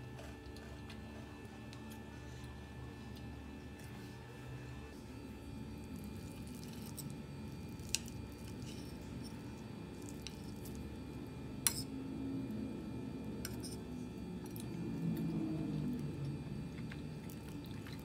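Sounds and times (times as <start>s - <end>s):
soft squishing of dumpling: 0.1s - 11.0s.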